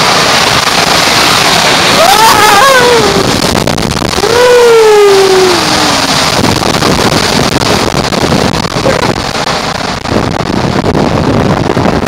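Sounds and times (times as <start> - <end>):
raft sliding through water tube: 0.0 - 12.0
water rushing: 0.0 - 12.0
wind on microphone: 0.0 - 12.0
person's voice: 8.8 - 9.1.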